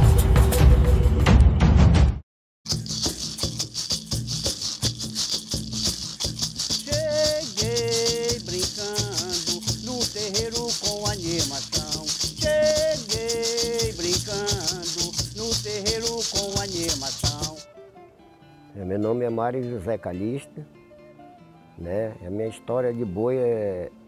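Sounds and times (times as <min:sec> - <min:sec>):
drum strokes: 0:02.7 - 0:17.6
maracas shaken: 0:02.7 - 0:17.7
person singing: 0:06.6 - 0:17.6.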